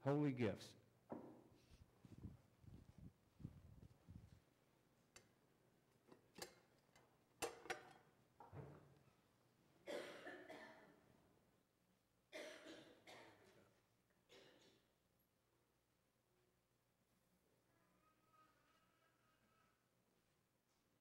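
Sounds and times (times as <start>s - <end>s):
people coughing: 9.8s - 11.0s, 12.3s - 13.6s, 14.3s - 14.9s.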